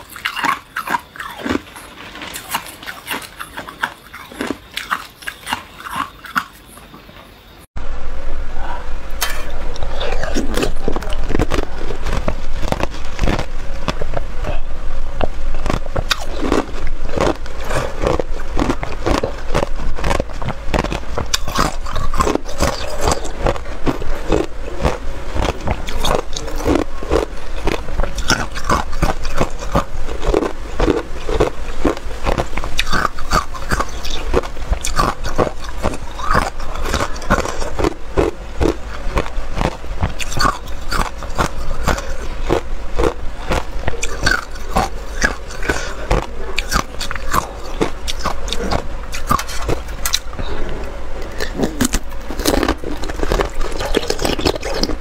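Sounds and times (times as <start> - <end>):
ice crunched in mouth: 15.2 - 50.3, 51.3 - 55.0.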